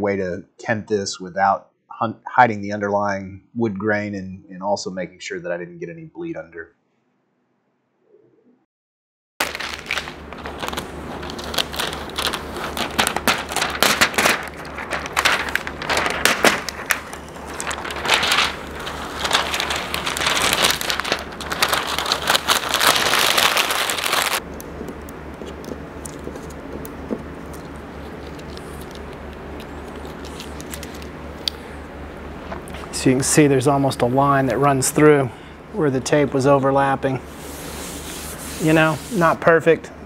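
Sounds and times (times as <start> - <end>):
steady low hum: 9.4 - 40.0
masking tape peeling off wood: 10.6 - 31.1.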